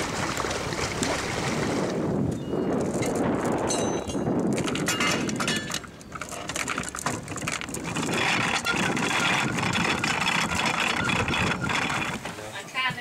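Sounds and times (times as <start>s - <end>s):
anchor chain rattling: 2.8s - 12.4s
boat engine running: 4.6s - 13.0s.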